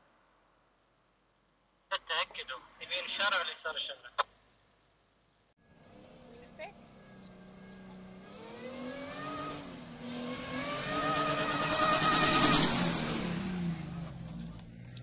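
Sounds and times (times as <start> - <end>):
car engine accelerating: 5.6 - 15.0.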